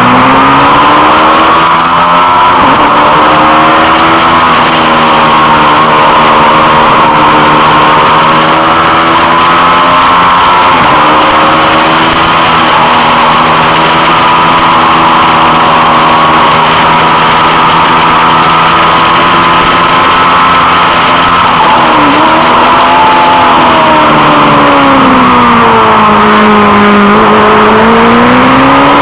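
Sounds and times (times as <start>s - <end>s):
motorcycle engine at high revs: 0.0s - 29.0s.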